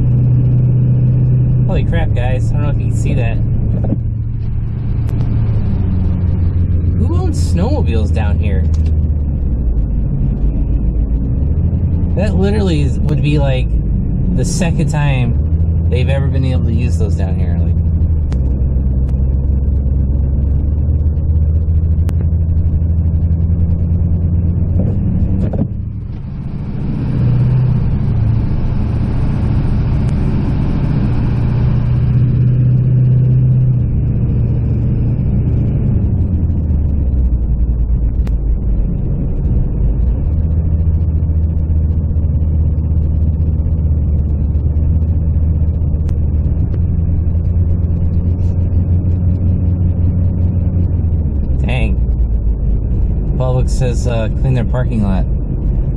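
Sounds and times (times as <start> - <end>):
low engine drone: 0.0 - 55.9
road noise hiss: 25.9 - 55.9.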